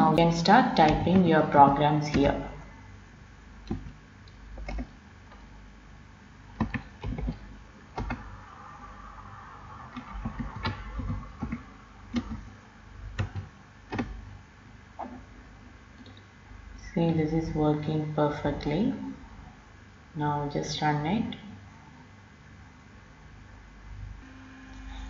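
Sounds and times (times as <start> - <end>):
computer keyboard typing: 3.7 - 4.0, 4.6 - 4.9, 6.6 - 7.4, 8.0 - 8.3, 9.9 - 12.5, 13.2 - 14.2.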